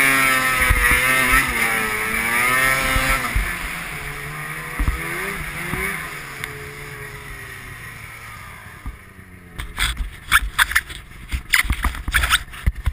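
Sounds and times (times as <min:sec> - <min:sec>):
snowmobile engine running: 0:00.0 - 0:12.9
sharp knocks and crackles: 0:00.5 - 0:01.6, 0:04.7 - 0:05.9, 0:09.6 - 0:12.9.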